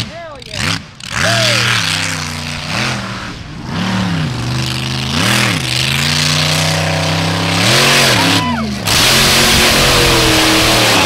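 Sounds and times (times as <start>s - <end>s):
truck engine revving: 0.0s - 11.0s
heavy rushing noise: 2.4s - 11.0s.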